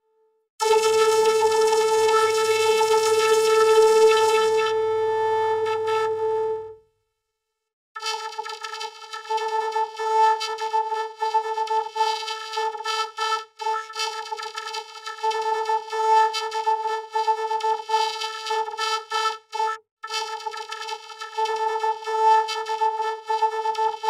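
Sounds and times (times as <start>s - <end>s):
buzzy vocoder synth tone: 0.6s - 5.1s.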